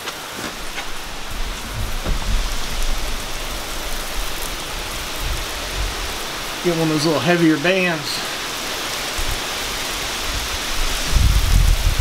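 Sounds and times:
heavy rain falling: 0:00.0 - 0:12.0
low rumble: 0:00.5 - 0:06.7.

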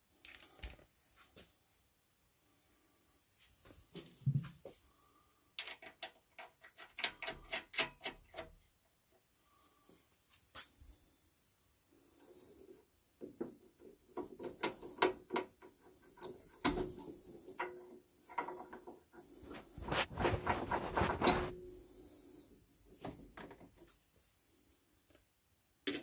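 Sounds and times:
small clicks and knocks: 0:00.2 - 0:00.9, 0:05.6 - 0:08.6, 0:13.2 - 0:19.2.

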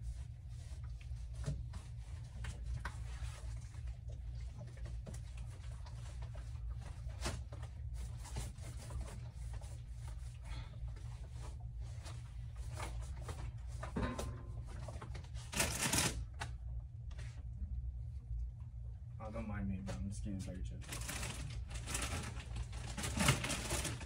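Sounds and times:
steady low hum: 0:00.0 - 0:24.0
packaging and clothing rustling: 0:20.9 - 0:24.0.

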